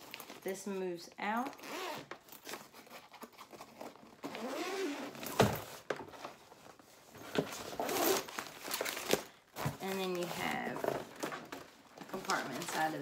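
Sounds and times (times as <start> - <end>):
suitcase fabric rustling: 3.6 - 13.0.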